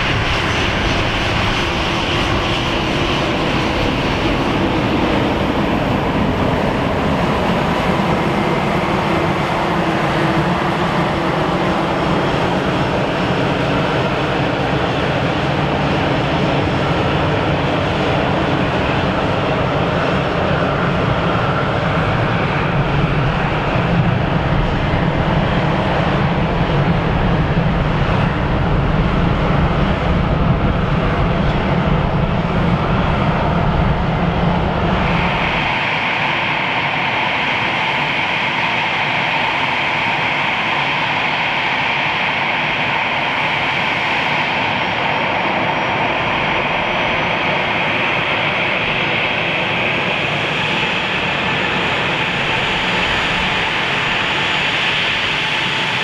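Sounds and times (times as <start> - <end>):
jet engine high whine: 0.0 - 56.0
jet engine low rumble: 0.0 - 56.0.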